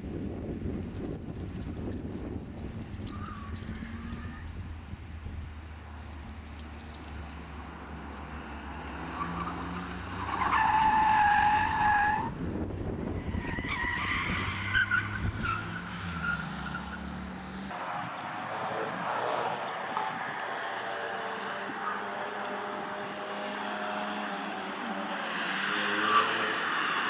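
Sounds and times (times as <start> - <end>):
tyres squealing: 6.8 - 12.3
car engine running hard: 16.7 - 27.0.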